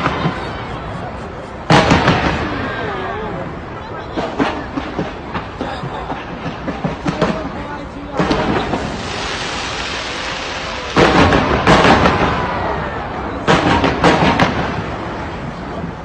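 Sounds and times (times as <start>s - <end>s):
fireworks booms: 0.0s - 16.0s
fireworks crackling: 0.0s - 16.0s.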